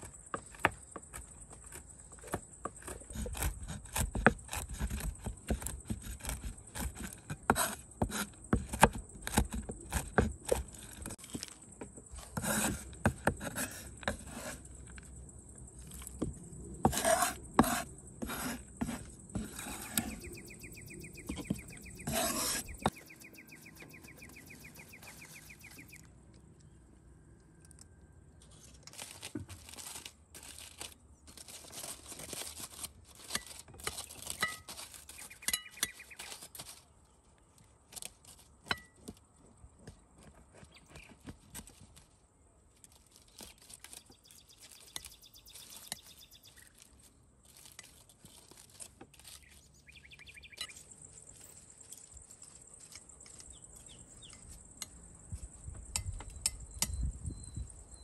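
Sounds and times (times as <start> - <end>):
utensils scraping against dishes: 16.9 - 23.2.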